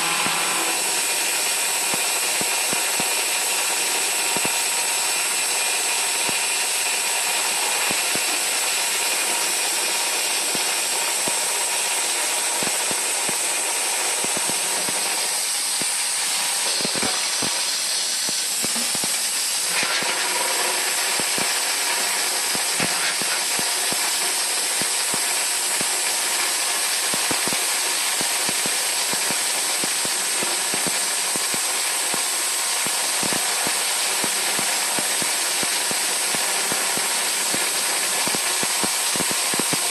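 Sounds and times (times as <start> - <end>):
lathe running with hiss: 0.0 - 39.9.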